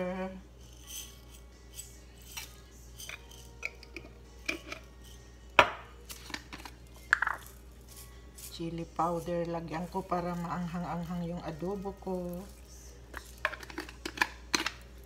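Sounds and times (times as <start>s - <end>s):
glass jar clinking: 0.6s - 7.6s
peppercorns falling into glass bowl: 0.6s - 15.0s
jar knocking on stone counter: 5.6s - 5.9s, 7.1s - 7.4s.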